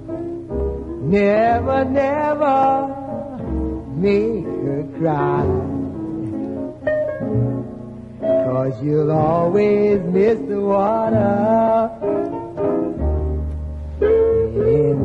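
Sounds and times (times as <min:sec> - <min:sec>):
steady low bass: 0:00.0 - 0:06.4.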